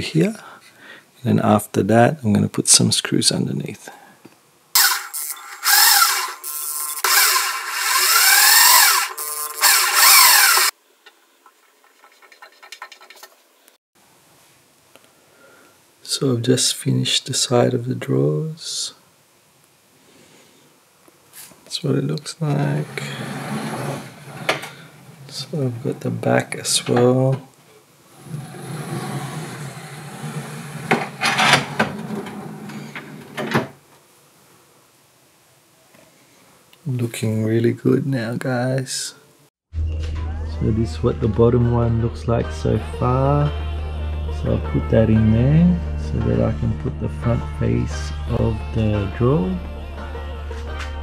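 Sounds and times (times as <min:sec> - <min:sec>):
electric drill driving screws: 0:04.8 - 0:10.8
drawer rolling on slides: 0:22.8 - 0:25.4, 0:28.1 - 0:33.7.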